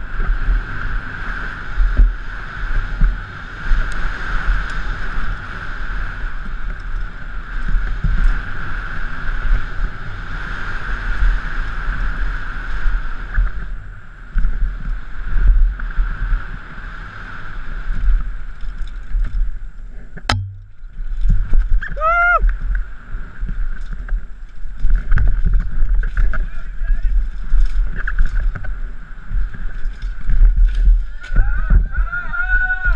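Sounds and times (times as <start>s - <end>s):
bike rumbling and rattling: 0.0s - 32.9s
wind rushing on microphone: 0.0s - 32.9s
sharp knock: 20.3s - 20.8s.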